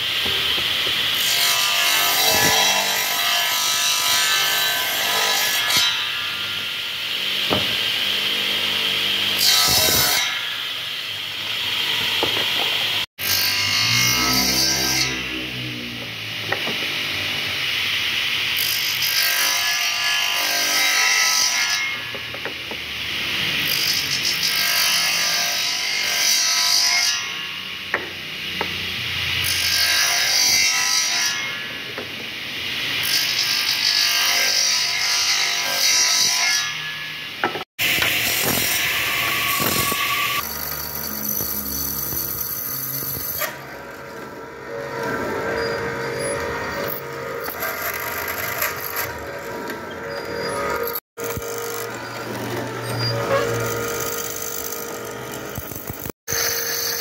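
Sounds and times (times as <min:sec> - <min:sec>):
circular saw cutting wood: 0:00.0 - 0:32.0, 0:32.6 - 0:57.0
mortising machine cutting wood: 0:37.4 - 0:57.0
saw motor running freely: 0:45.1 - 0:57.0.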